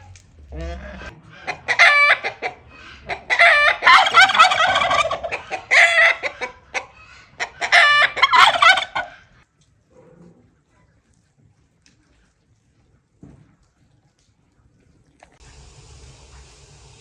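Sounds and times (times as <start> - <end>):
hen clucking: 0.5 - 9.4
turkey gobbling: 0.5 - 9.4.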